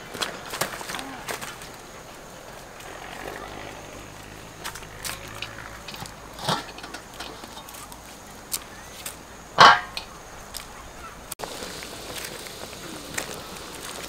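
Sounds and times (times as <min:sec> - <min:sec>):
footsteps crunching on pebbles: 0:00.0 - 0:14.0.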